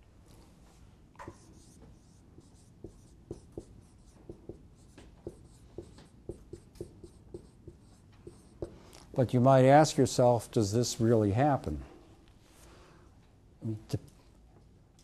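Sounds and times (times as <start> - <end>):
marker writing on whiteboard: 1.2 - 8.8.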